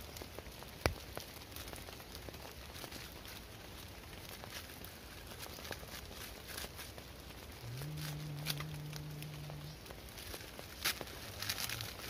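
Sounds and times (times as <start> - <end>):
campfire crackling: 0.0 - 12.0
rain pattering on a tarp: 0.0 - 12.0
low steady hum: 3.3 - 12.0.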